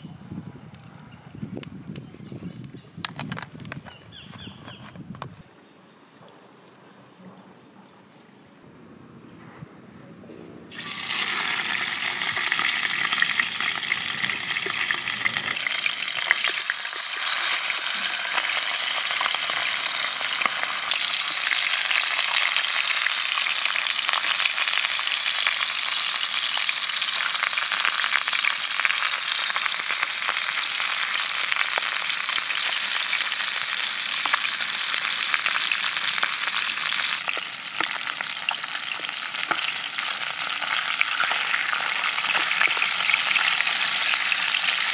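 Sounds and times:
fish sizzling in hot oil: 10.7s - 44.9s.

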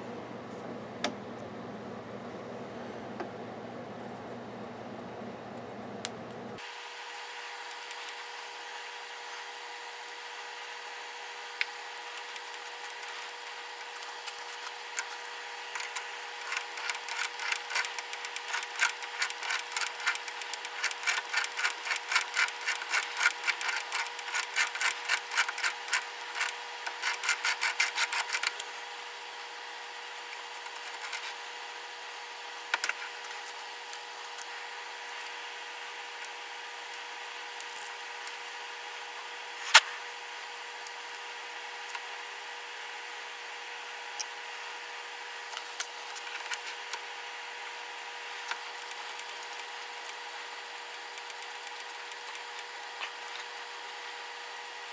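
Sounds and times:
rhythmic rasp of die cutting: 12.0s - 28.5s.

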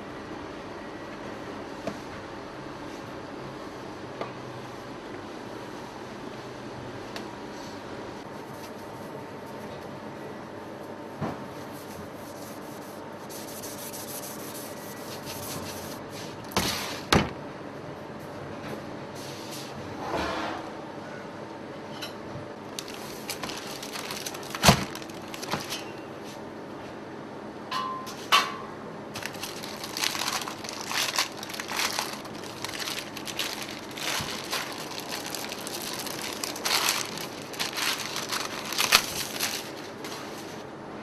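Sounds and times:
baking paper crinkling: 22.7s - 26.0s, 29.2s - 40.6s.

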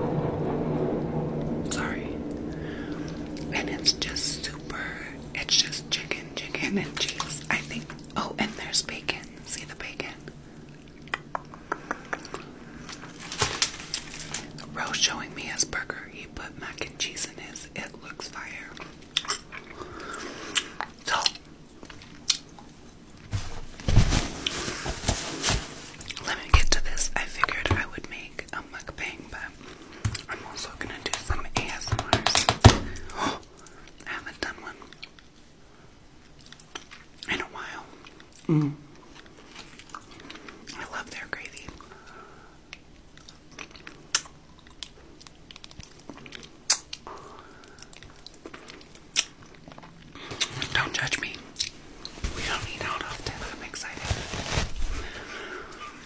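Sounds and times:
wet mouth clicks and smacks: 10.7s - 12.5s, 20.5s - 22.7s, 42.7s - 47.1s, 47.7s - 50.7s
chewing: 18.8s - 22.7s, 39.1s - 40.8s, 43.1s - 50.7s
low thump and rustle: 23.3s - 26.0s.

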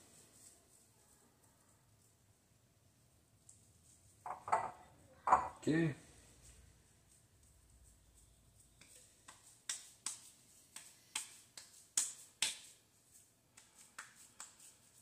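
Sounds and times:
hands slapping raw meat: 8.8s - 14.7s.

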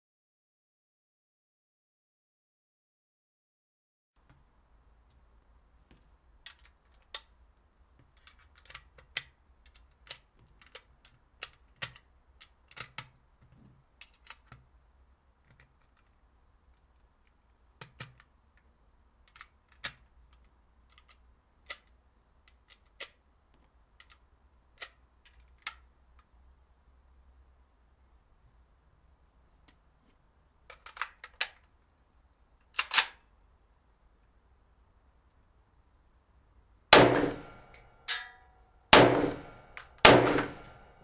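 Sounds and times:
cartridges clicking into magazine: 8.2s - 13.1s, 30.7s - 31.7s, 32.7s - 33.2s, 37.0s - 38.4s, 39.0s - 40.8s.

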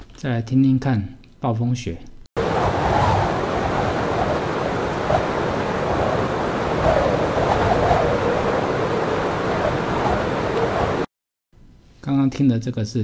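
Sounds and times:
strong blizzard wind gusting: 2.4s - 11.1s.

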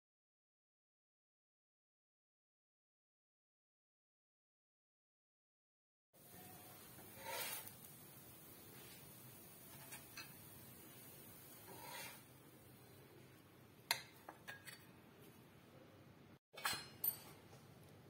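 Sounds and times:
faint room hiss: 6.2s - 18.0s.

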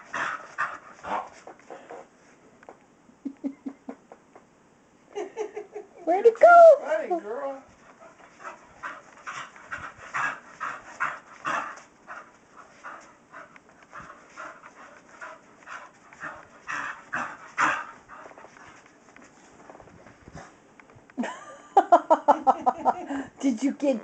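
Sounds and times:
dog panting: 0.0s - 2.1s, 7.6s - 20.6s.

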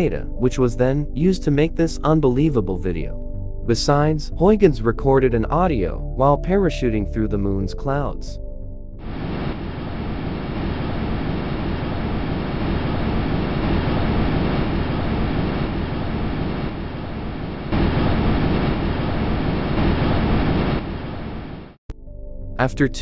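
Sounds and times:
steady rushing noise: 9.0s - 21.8s.

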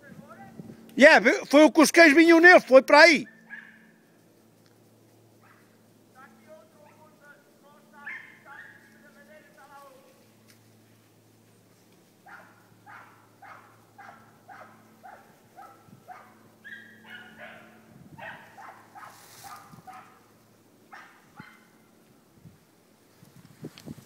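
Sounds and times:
hunting dogs barking: 3.2s - 4.0s, 5.4s - 5.8s, 6.6s - 7.2s, 8.0s - 9.0s, 12.2s - 22.0s
higher-pitched dog barking: 3.3s - 3.9s, 8.0s - 8.8s, 12.3s - 20.2s, 20.9s - 21.8s.

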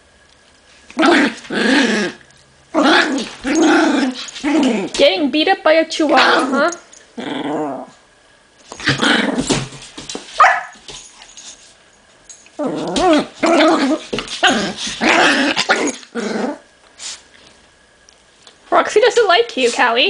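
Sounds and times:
dogs growling and barking: 0.9s - 5.0s, 6.1s - 8.0s, 8.7s - 9.9s, 12.6s - 16.7s.

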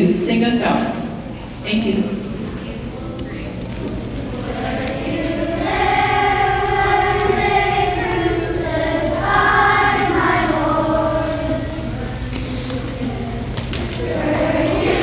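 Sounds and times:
children's choir singing: 4.0s - 15.0s.

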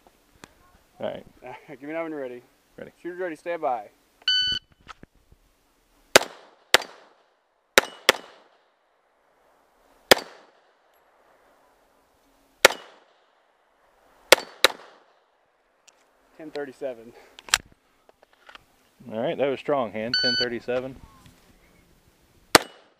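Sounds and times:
pistol shots: 6.1s - 7.2s, 7.8s - 8.6s, 10.1s - 10.7s, 12.6s - 13.2s, 14.3s - 15.2s, 22.5s - 22.9s.

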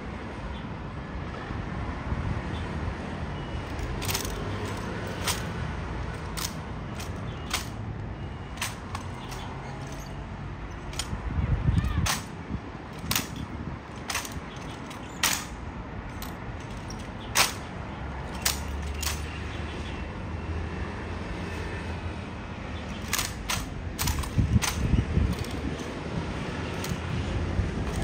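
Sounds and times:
sharp clicks and knocks: 3.7s - 7.8s, 8.5s - 11.2s, 11.8s - 19.3s, 22.9s - 27.2s, 27.8s - 28.0s.

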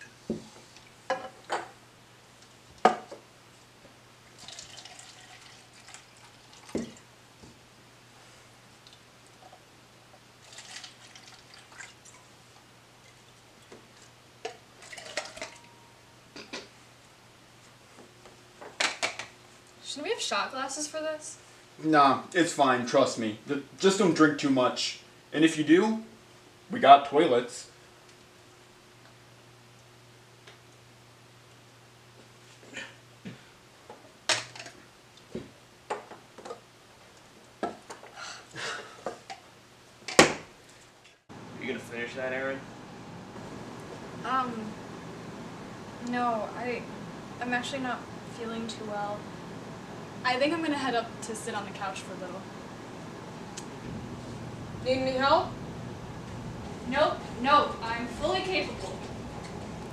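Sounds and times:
liquid splashing into cups: 4.3s - 7.1s, 10.4s - 12.3s, 13.9s - 15.7s.

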